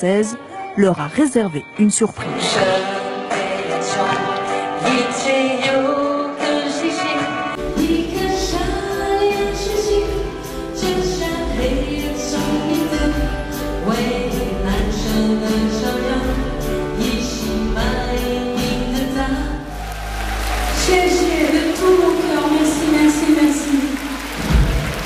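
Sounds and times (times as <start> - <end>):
woman singing into a microphone: 1.6 - 19.7, 20.7 - 24.2
audience applause: 19.7 - 25.0.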